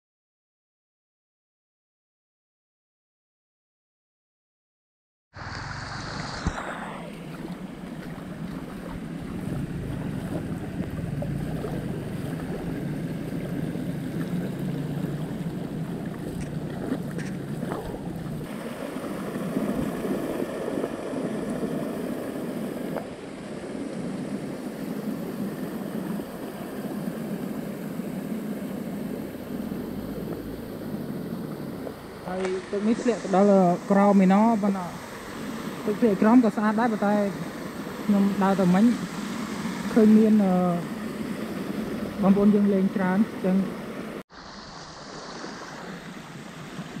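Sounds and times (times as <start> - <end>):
river water rushing: 5.4 - 47.0.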